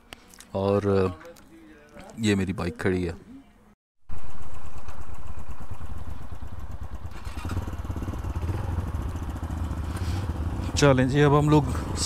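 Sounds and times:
motorcycle engine running: 4.1s - 12.0s.

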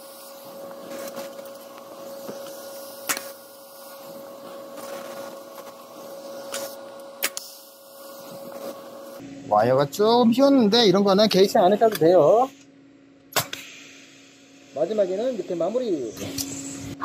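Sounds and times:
welding torch crackle: 0.0s - 9.2s
welding machine hum: 0.0s - 17.0s.

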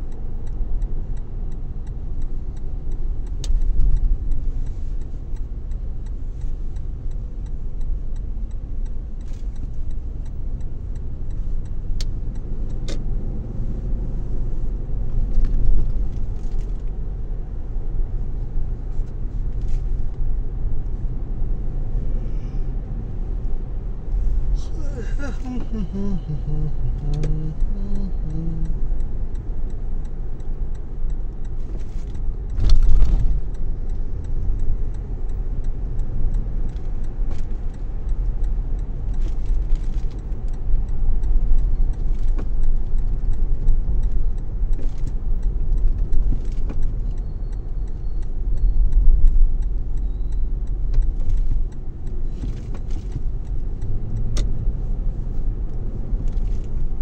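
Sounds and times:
car engine and tyre rumble: 0.0s - 57.0s
small clicks and rattles: 39.0s - 40.6s, 55.3s - 57.0s.

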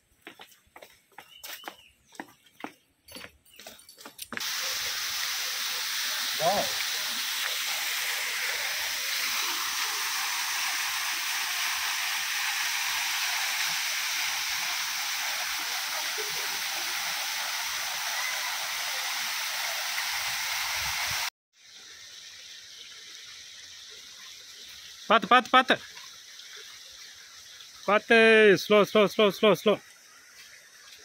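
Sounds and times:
waterfall rushing: 4.4s - 21.3s
faint hiss: 4.4s - 28.9s.

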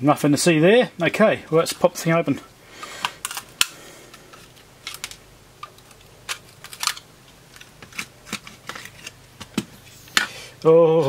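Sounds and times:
plastic clips snapping: 3.0s - 3.8s, 4.4s - 10.3s.

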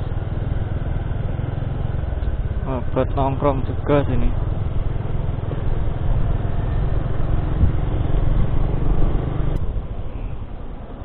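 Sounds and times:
motorcycle engine running: 0.0s - 10.3s
road rumble: 0.0s - 11.0s
wind noise on microphone: 7.0s - 11.0s.

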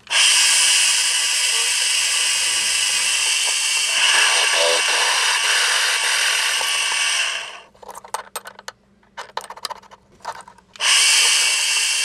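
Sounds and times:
drill press boring into steel: 0.0s - 7.6s, 10.8s - 12.0s.

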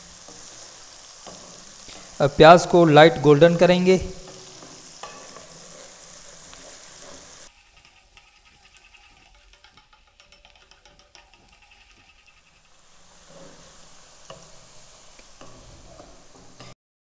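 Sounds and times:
onions sizzling in oil: 0.0s - 16.8s
ticks and crackles: 7.7s - 12.8s.

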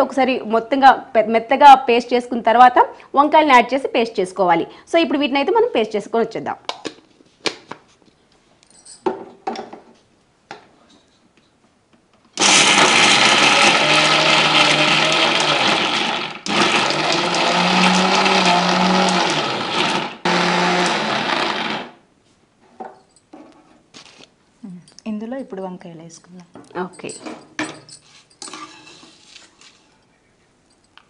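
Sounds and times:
mixer grinder grinding: 12.4s - 22.0s.

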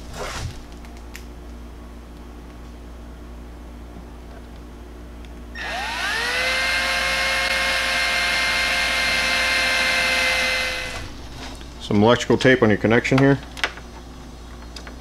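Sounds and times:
cordless drill whining: 5.6s - 11.1s.

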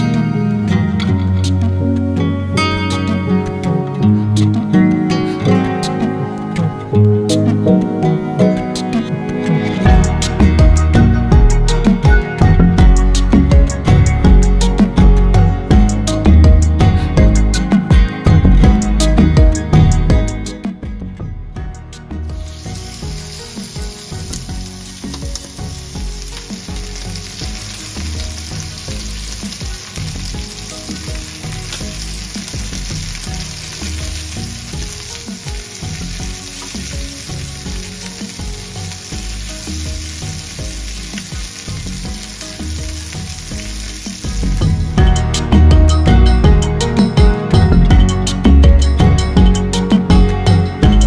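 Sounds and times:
chicken sizzling in a pan: 22.2s - 45.1s.

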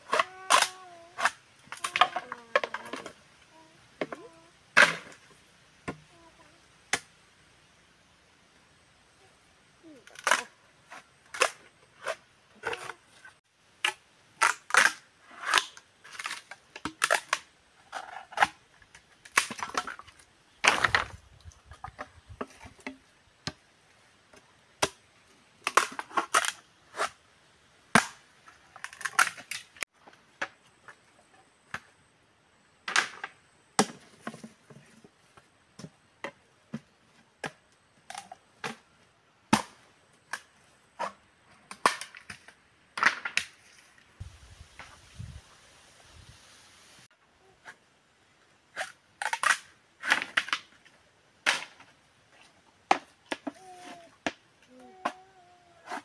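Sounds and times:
machete chopping bamboo: 27.9s - 28.2s.

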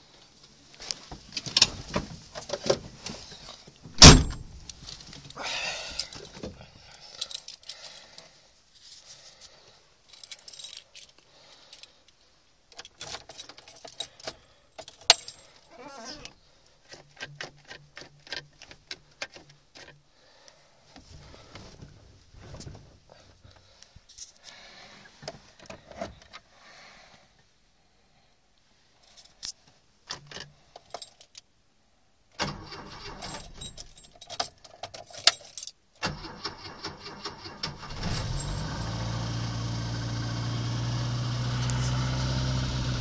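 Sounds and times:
loud thunk: 4.0s - 4.5s
car keys jangling: 6.0s - 8.1s, 10.1s - 11.9s, 12.7s - 15.7s, 29.0s - 31.5s, 32.6s - 35.8s, 37.8s - 39.0s.

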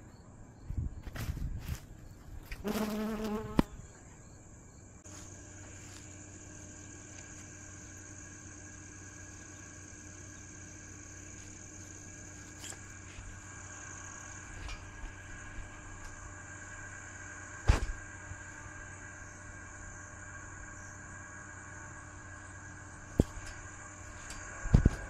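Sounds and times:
insect chorus chirring: 0.0s - 25.0s
low hum: 3.6s - 25.0s
sharp thump: 17.6s - 18.0s.

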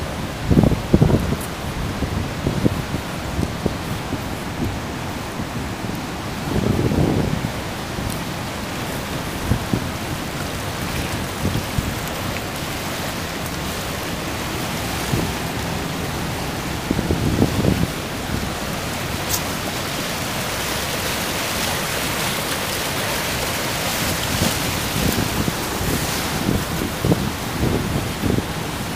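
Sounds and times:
river water rushing: 0.0s - 28.9s.

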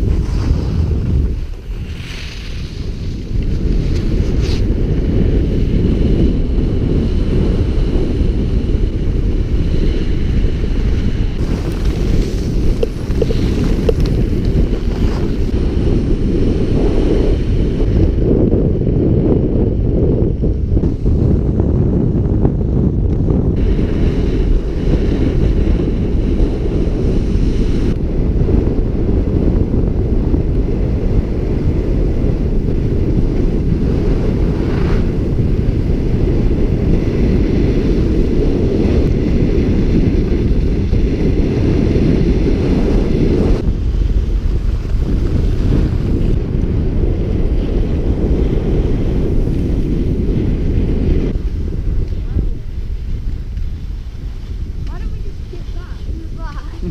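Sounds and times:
skis scraping on snow: 0.0s - 4.8s, 11.4s - 15.6s, 43.8s - 46.3s, 51.4s - 56.9s
wind buffeting microphone: 0.0s - 56.9s.

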